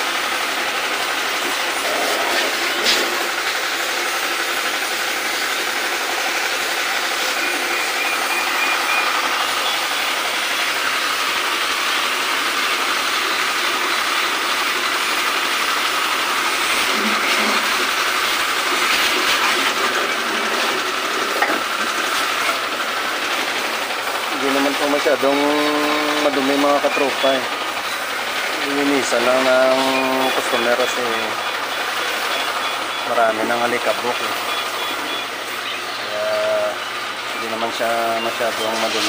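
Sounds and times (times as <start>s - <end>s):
pump humming: 0.0s - 39.0s
pressure washer spray hiss: 1.5s - 6.1s, 16.3s - 22.7s.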